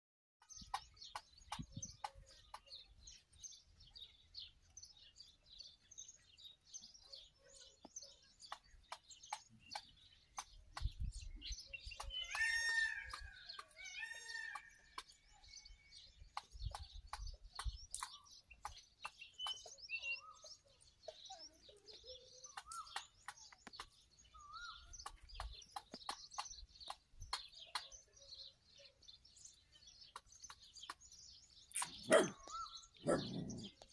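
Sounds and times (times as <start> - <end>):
pitched bird calls: 0.4 - 33.9
small birds chirping: 0.4 - 33.9
peacock pecking grain: 21.9 - 32.7.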